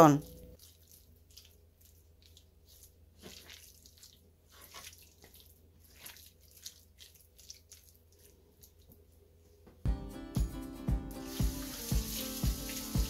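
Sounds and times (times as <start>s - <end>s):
hands squishing raw chicken: 0.5s - 9.4s.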